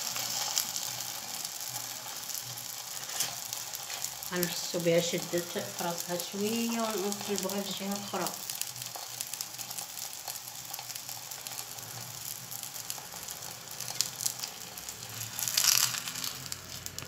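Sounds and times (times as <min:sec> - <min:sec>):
flatbread sizzling in frying pan: 0:00.0 - 0:17.0
spatula sliding under flatbread: 0:02.9 - 0:04.1.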